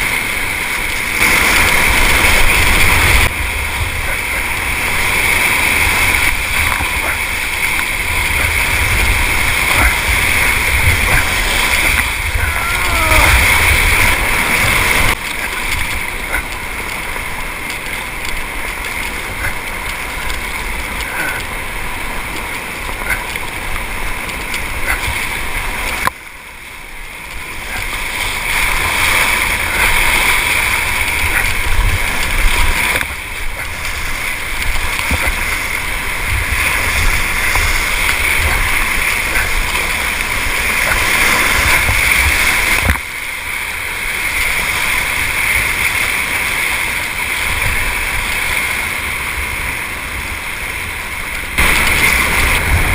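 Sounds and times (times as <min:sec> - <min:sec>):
wind on microphone: 0:00.0 - 0:26.2, 0:27.3 - 0:45.8, 0:46.9 - 0:52.9
whitewater rushing and splashing: 0:00.0 - 0:52.9.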